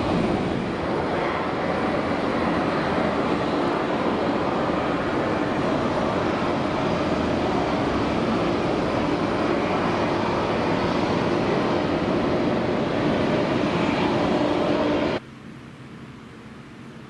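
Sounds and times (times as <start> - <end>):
jet engines rumbling: 0.0 - 17.0
faint steady hum: 14.9 - 17.0.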